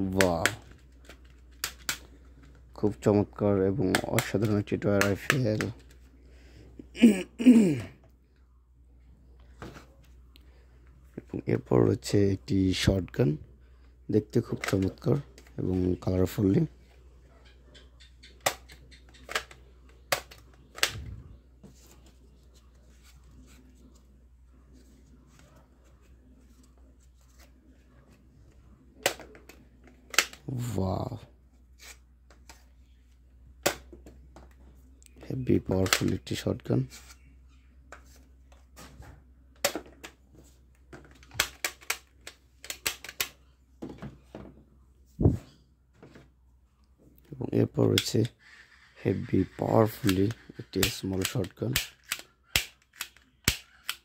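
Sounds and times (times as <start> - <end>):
plastic toy blaster clicks: 49.9 - 54.0.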